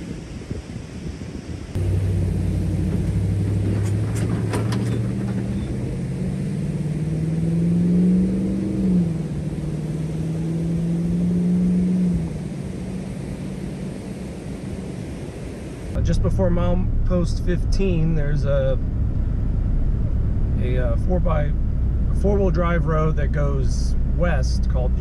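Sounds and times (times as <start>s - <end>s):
pickup truck engine revving: 1.8s - 15.0s.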